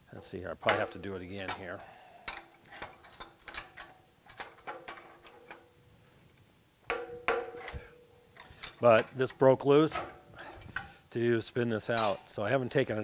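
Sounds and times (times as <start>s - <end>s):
metal clank: 0.6s - 5.8s, 6.9s - 10.9s
metal wrench clicks and clinks: 1.8s - 5.6s.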